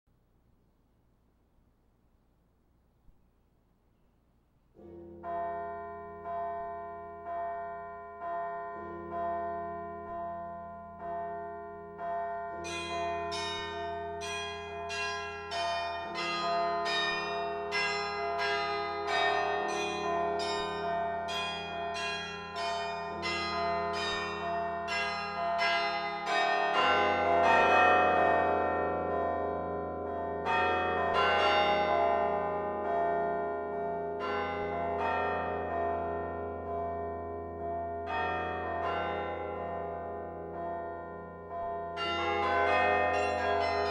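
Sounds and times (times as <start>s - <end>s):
low carillon bells: 4.8s - 43.9s
high bright carillon bells: 5.0s - 43.9s
carillon bells ringing: 12.6s - 27.9s, 42.0s - 43.9s.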